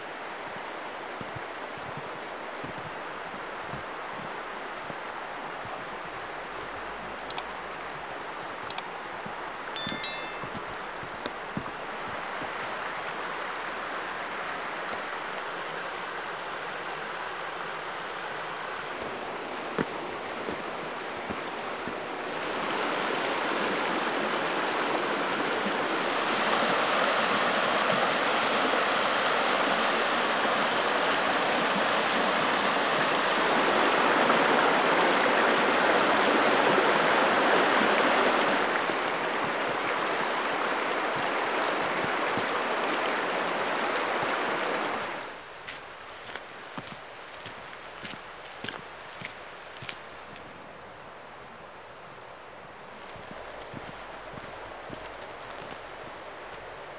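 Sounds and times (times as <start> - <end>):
water rushing over rocks: 12.3 - 50.2.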